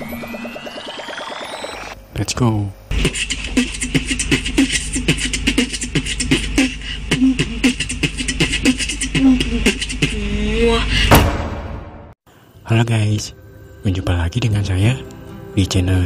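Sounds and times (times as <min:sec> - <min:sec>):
rising tone: 0:00.0 - 0:02.0
fast beatbox beat: 0:02.9 - 0:10.4.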